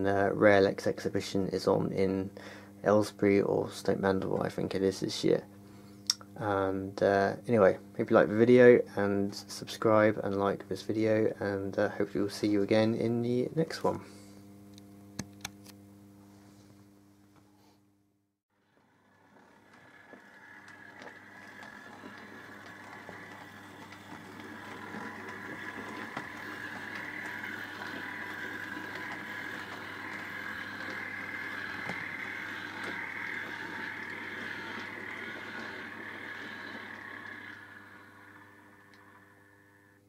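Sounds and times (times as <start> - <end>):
model train whirring: 18.5 - 40.0.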